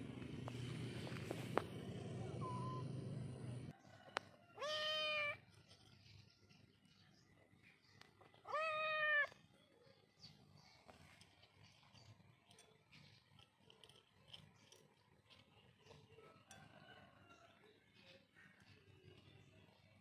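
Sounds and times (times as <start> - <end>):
kitten meowing: 4.6 - 5.4, 8.5 - 9.3.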